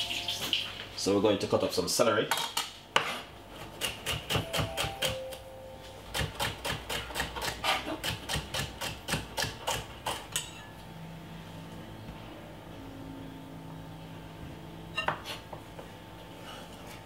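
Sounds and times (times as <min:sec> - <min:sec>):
knife chopping on wooden board: 0:03.0 - 0:05.3, 0:06.1 - 0:10.3.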